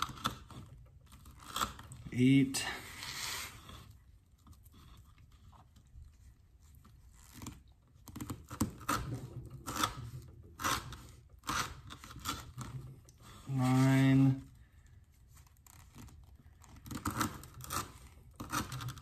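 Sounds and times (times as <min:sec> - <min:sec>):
knife slicing through rope: 0:07.2 - 0:14.4.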